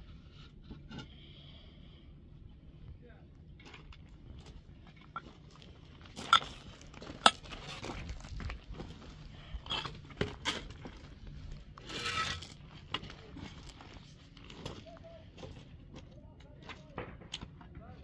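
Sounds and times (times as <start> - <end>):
short scraping rustle: 11.8 - 12.6.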